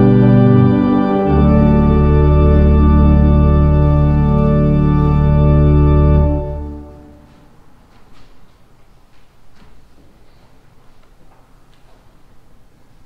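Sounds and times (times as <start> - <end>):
organ chord with deep bass: 0.0 - 7.2.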